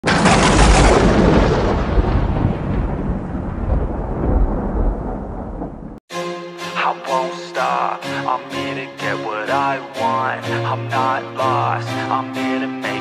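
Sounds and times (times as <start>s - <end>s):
thunder clap and rumble: 0.0s - 6.0s
music: 6.1s - 13.0s.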